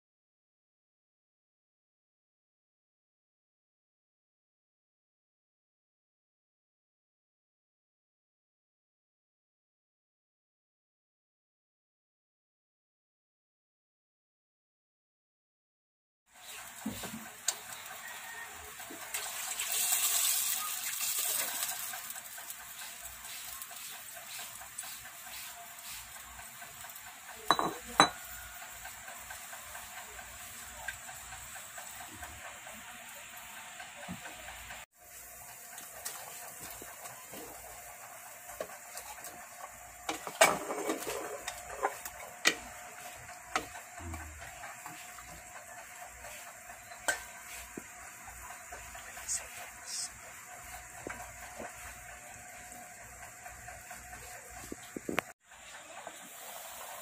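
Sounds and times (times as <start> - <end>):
pot simmering hiss: 16.3 - 57.0
utensil clanking and scraping pot: 16.4 - 32.3, 38.5 - 47.8
water pouring into a pot: 18.8 - 23.9.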